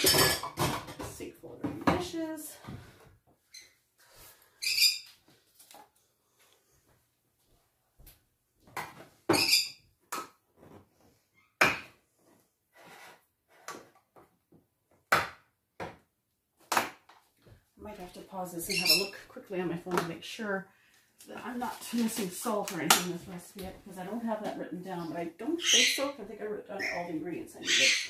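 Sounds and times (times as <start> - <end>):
parrot squawking: 18.7 - 19.1, 25.6 - 26.1, 26.8 - 28.0.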